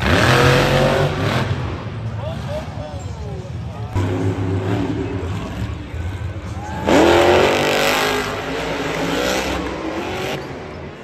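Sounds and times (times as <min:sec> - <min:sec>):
truck engine revving hard: 0:00.0 - 0:02.5, 0:03.9 - 0:10.6.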